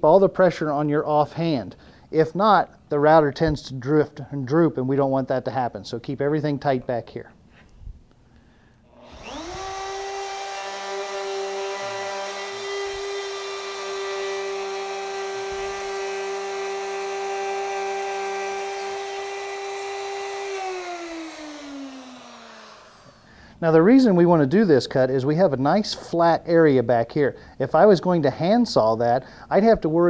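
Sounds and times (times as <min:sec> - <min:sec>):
router whining: 0:08.9 - 0:23.3.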